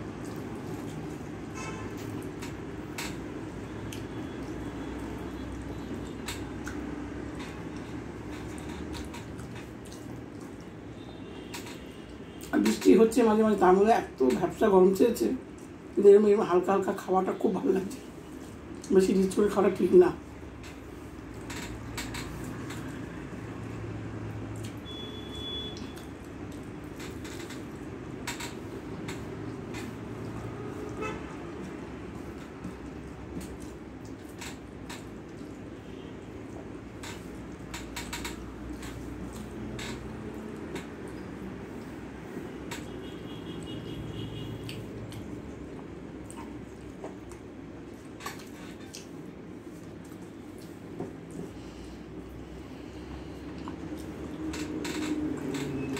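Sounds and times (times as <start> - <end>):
chewing: 0.0 - 11.1, 24.4 - 25.0, 28.9 - 35.8, 36.4 - 42.0, 44.6 - 55.9
low background hum: 0.0 - 55.9.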